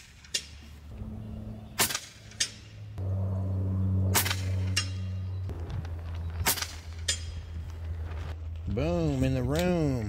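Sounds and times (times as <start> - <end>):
steady low hum: 0.8 - 8.8
air rifle shots cracking: 1.8 - 2.7, 4.1 - 5.0, 6.4 - 7.0.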